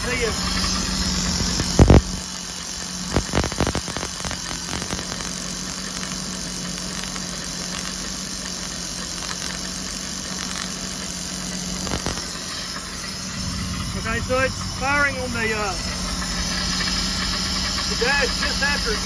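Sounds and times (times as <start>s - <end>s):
engine hum: 0.0s - 7.9s, 8.6s - 19.0s
electrical spark hiss and buzz: 0.0s - 19.0s
sharp spark snaps: 1.3s - 12.6s.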